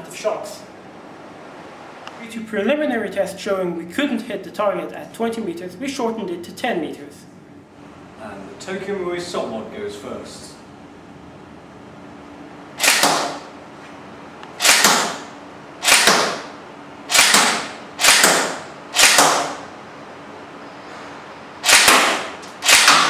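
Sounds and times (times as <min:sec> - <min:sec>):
airsoft gun single shots: 0:12.8 - 0:13.5, 0:14.6 - 0:16.5, 0:17.1 - 0:19.7, 0:21.6 - 0:23.0.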